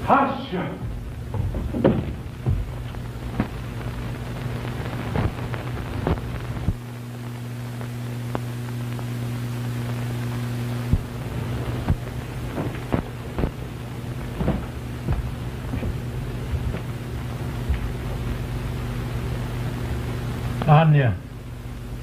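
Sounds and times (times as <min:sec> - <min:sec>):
low hum and hiss: 0:00.0 - 0:22.0
clicks and pops: 0:00.9 - 0:06.9, 0:07.8 - 0:09.1, 0:10.8 - 0:18.4.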